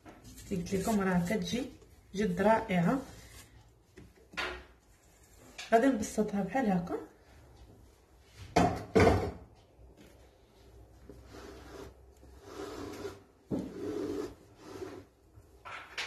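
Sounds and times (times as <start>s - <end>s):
spatula scraping baking dish: 11.2s - 15.2s.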